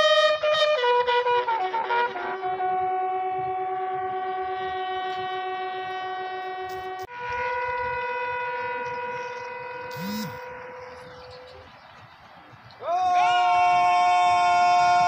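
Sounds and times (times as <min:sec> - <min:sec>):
bugle call: 0:00.0 - 0:11.7.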